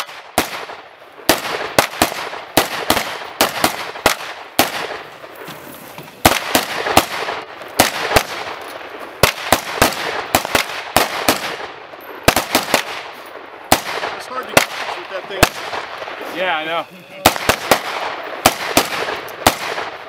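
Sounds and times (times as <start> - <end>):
gunshots: 0.0 - 5.4, 6.2 - 20.0.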